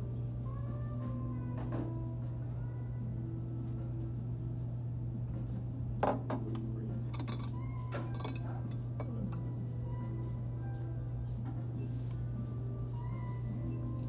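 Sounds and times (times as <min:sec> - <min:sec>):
low background hum: 0:00.0 - 0:14.0
utensils clinking against plates: 0:06.2 - 0:09.6.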